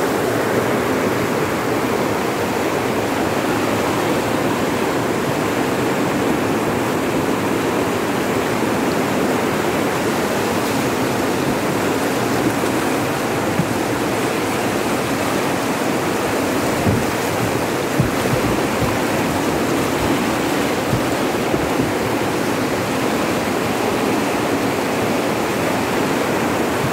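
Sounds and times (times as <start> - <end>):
river rushing over rocks: 0.0 - 26.9
low thumps: 11.2 - 22.9.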